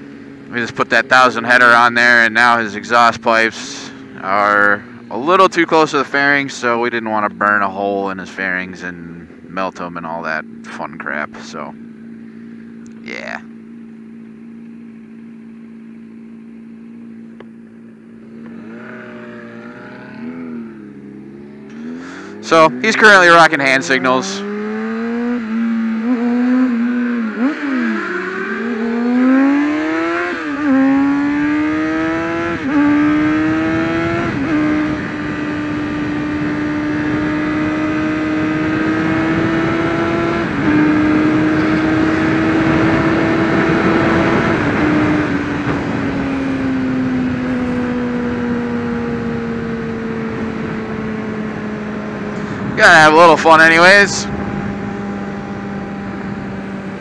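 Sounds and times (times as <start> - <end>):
motorcycle engine accelerating: 0.0 - 57.0
wind rushing on microphone: 32.0 - 57.0.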